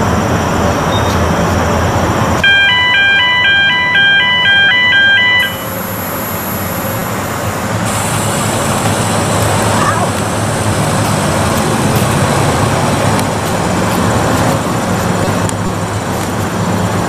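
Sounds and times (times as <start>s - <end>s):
outdoor background noise: 0.0s - 17.0s
electronic beeping melody: 2.4s - 7.5s.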